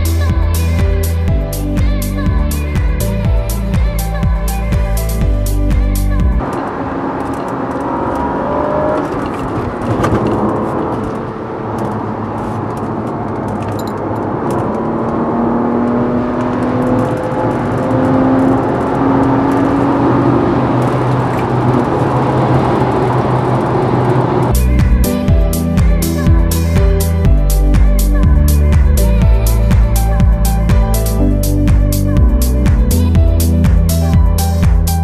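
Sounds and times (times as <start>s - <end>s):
road noise: 0.0s - 35.0s
car engine accelerating: 6.2s - 25.1s.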